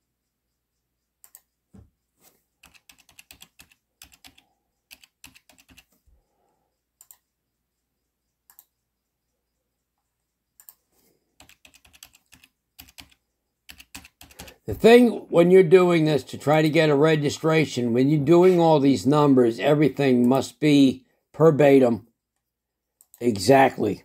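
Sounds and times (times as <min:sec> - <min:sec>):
typing on computer keyboard: 0:02.6 - 0:06.0, 0:07.0 - 0:07.3, 0:10.6 - 0:14.8.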